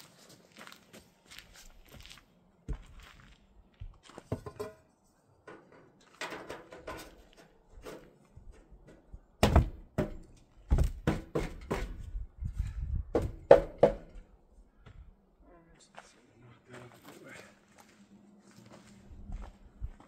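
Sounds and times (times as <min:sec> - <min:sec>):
metal pipe knocks and thumps: 0:04.2 - 0:04.9, 0:05.5 - 0:12.1.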